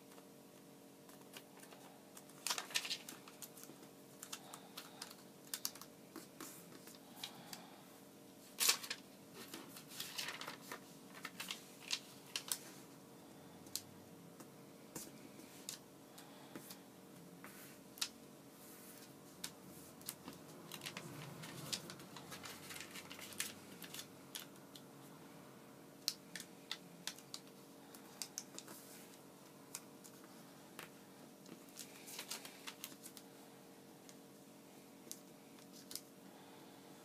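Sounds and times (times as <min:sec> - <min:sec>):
faint steady hum: 0:00.0 - 0:37.0
paper being folded by hand: 0:01.0 - 0:07.6, 0:08.5 - 0:13.0, 0:17.4 - 0:24.9, 0:26.0 - 0:33.2, 0:35.0 - 0:36.1.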